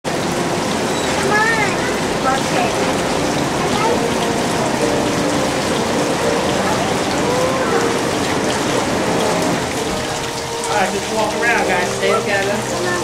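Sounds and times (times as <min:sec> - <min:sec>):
falling splashing water: 0:00.1 - 0:13.0
faint voices: 0:06.1 - 0:13.0.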